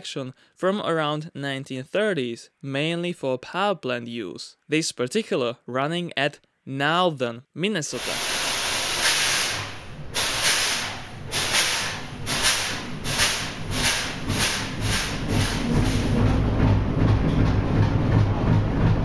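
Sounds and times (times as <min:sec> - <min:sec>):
compressed air hissing: 0:08.0 - 0:16.2
diesel engine starting and running: 0:08.0 - 0:19.0.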